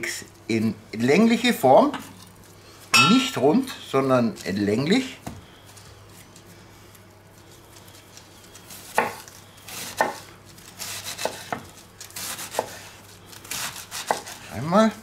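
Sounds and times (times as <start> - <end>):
knife cutting lettuce: 7.8 - 14.6.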